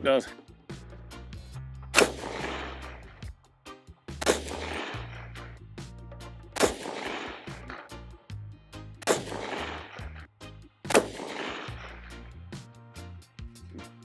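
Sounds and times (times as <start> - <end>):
rifle shots with echo: 1.9 - 3.1, 4.2 - 5.5, 6.6 - 7.9, 9.0 - 10.3, 10.9 - 12.2.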